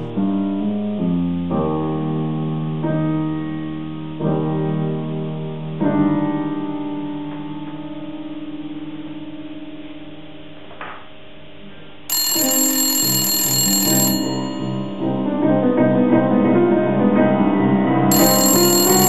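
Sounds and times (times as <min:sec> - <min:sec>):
grand piano playing: 0:13.9 - 0:19.0.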